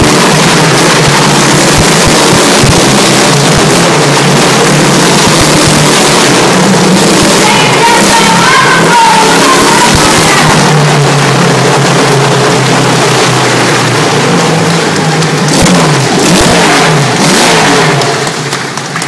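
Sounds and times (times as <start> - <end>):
motorcycle engine at high revs: 0.0 - 19.0.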